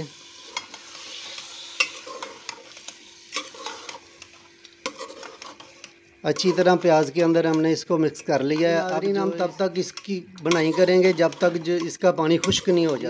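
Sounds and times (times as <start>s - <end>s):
meat and onions sizzling: 0.0s - 13.0s
metal spoon scraping pot: 0.5s - 4.0s, 4.8s - 6.8s, 8.4s - 13.0s.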